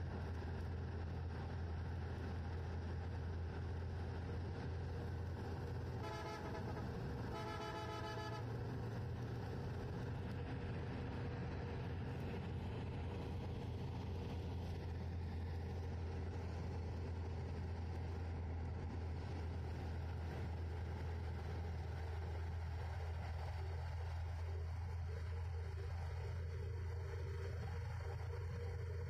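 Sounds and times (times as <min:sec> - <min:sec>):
low vehicle rumble: 0:00.0 - 0:29.0
vehicle horn toots: 0:06.0 - 0:08.5.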